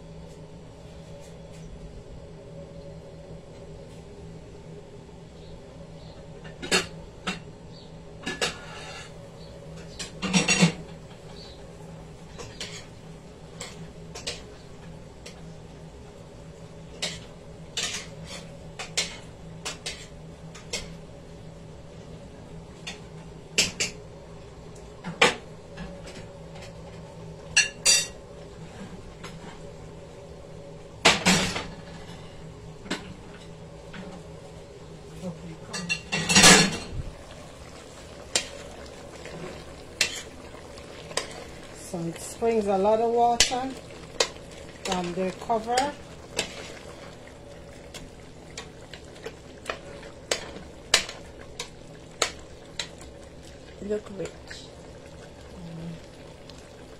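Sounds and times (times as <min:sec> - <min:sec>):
steady low hum: 0:00.0 - 0:56.9
pots and utensils clinking: 0:09.8 - 0:11.4, 0:12.3 - 0:12.9, 0:17.0 - 0:21.0, 0:27.5 - 0:28.2, 0:35.6 - 0:47.2, 0:47.9 - 0:54.6.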